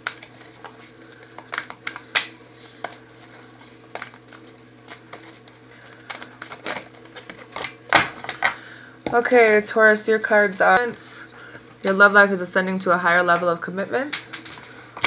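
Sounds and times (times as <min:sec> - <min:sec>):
cards shuffling and flicking: 0:00.0 - 0:08.5
steady low hum: 0:00.0 - 0:15.0.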